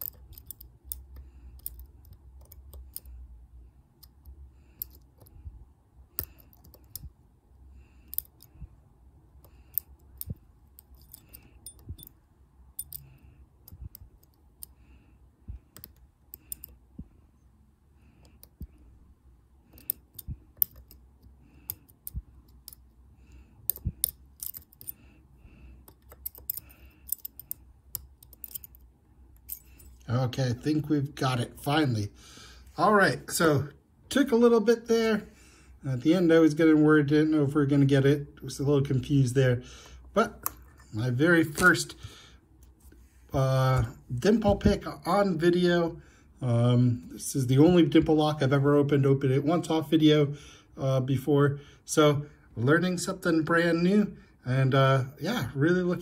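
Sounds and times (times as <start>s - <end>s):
lock pick metallic clicks and scrapes: 0.0s - 3.2s, 4.0s - 5.4s, 6.1s - 7.1s, 8.0s - 8.7s, 9.4s - 14.8s, 15.7s - 16.8s, 19.7s - 25.1s, 25.8s - 30.0s.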